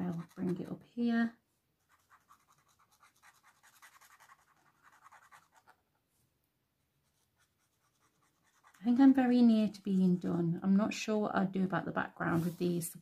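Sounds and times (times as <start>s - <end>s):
pen scratching on paper: 0.0s - 0.7s, 1.8s - 5.8s, 7.0s - 9.2s.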